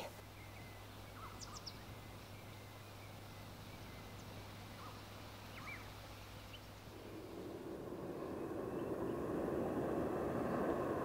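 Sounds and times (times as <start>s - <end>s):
low rumble: 6.9s - 11.0s.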